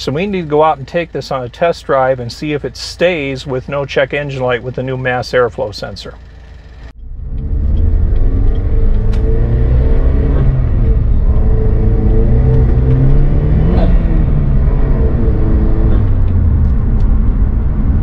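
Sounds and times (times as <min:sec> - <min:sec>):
road noise: 0:00.0 - 0:18.0
car engine accelerating through gears: 0:06.5 - 0:18.0.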